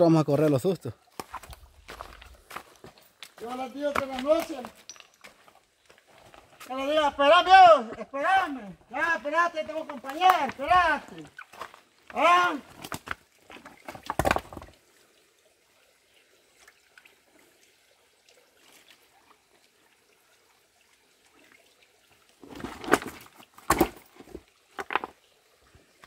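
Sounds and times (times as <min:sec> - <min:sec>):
faint water trickle: 0:00.3 - 0:13.9, 0:14.6 - 0:22.4, 0:24.2 - 0:26.0
stones knocking: 0:01.2 - 0:05.6, 0:09.0 - 0:14.7, 0:22.4 - 0:25.2.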